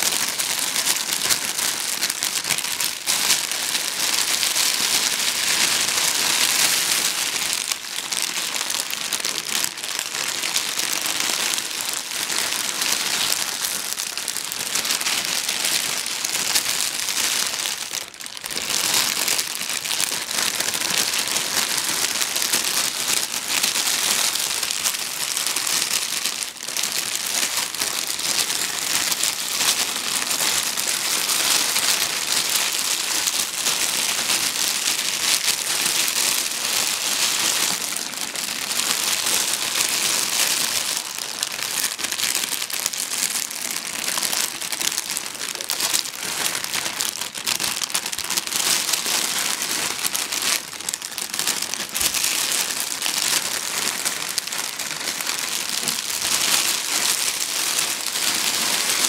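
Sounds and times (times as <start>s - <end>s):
plastic bag crinkling: 0.0s - 59.0s.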